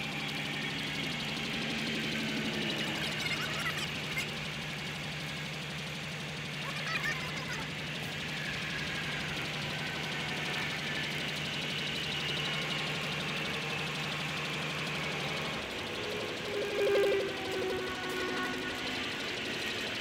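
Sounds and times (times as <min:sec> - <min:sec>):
truck engine running steadily: 0:00.0 - 0:20.0
faint hydraulic whine: 0:07.2 - 0:20.0.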